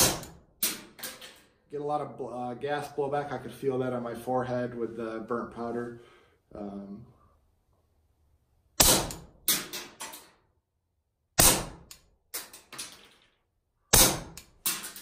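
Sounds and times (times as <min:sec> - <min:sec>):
suppressed pistol shots: 0:00.0 - 0:00.8, 0:08.8 - 0:10.0, 0:11.4 - 0:12.0, 0:13.9 - 0:14.5.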